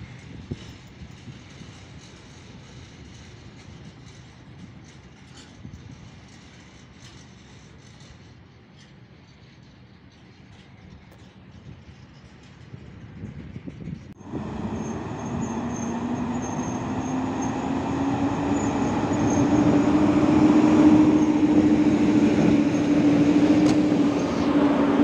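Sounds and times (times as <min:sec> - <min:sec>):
distant freight train rumble: 0:00.0 - 0:25.0
electric locomotive passing: 0:00.0 - 0:25.0
high wheel squeal: 0:14.2 - 0:25.0.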